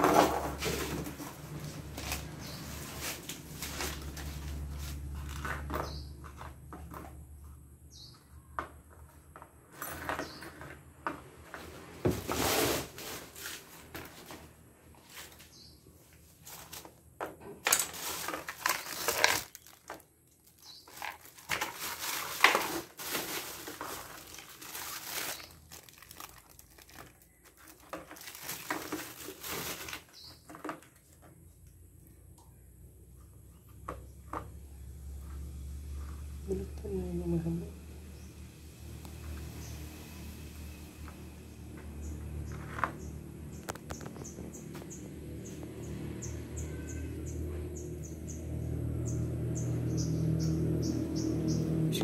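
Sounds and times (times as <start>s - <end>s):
plastic wrapping crinkling: 17.6s - 31.2s.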